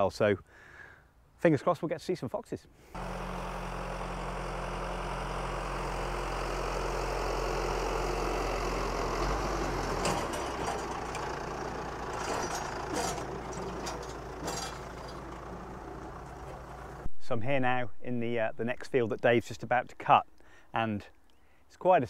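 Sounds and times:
tractor diesel engine drone: 2.9 - 20.7
knocks and rattles: 9.8 - 16.9.

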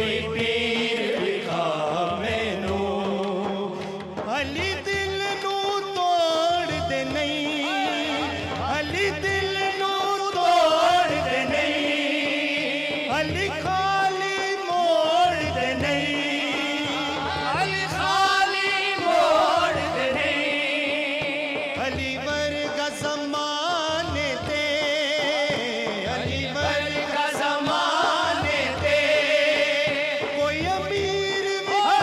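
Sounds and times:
men singing into microphones: 0.0 - 32.0.

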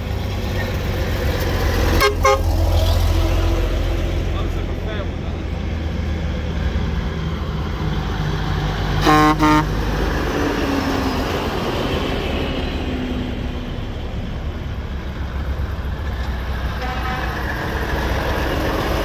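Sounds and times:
vehicle engines rumbling past: 0.0 - 19.0
vehicle horn toots: 2.0 - 2.5, 9.0 - 9.8, 16.8 - 17.5.

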